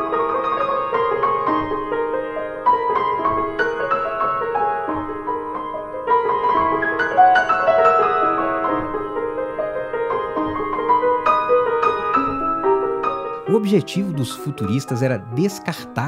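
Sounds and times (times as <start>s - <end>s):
keyboard music: 13.4s - 16.0s.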